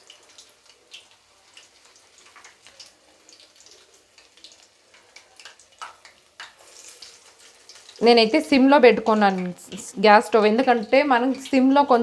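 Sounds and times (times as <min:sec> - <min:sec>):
food frying in hot oil: 0:00.0 - 0:12.0
oil crackling and popping: 0:00.0 - 0:12.0.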